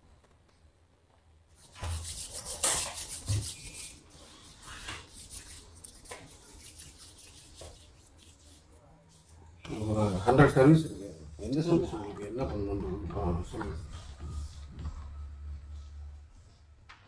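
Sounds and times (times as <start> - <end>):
objects rustling and rubbing: 1.5 - 10.0.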